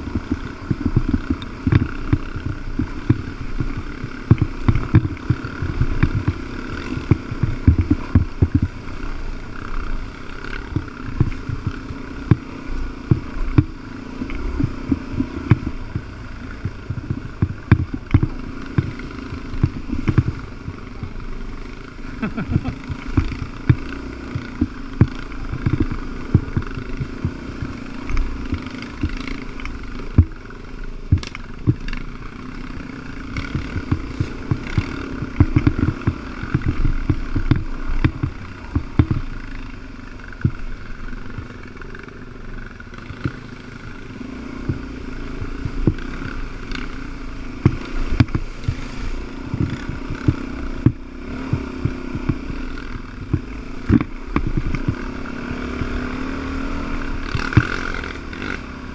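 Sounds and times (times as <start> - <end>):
dirt bike engine running: 0.0 - 58.9
knocks and rattles of bike: 0.0 - 58.9.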